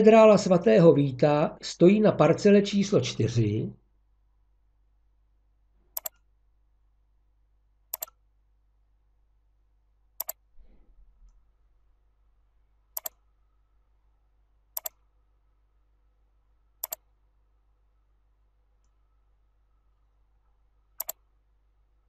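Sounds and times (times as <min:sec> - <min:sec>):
mouse button clicks: 0:06.0 - 0:06.2, 0:07.9 - 0:08.2, 0:16.8 - 0:17.0, 0:21.0 - 0:21.2.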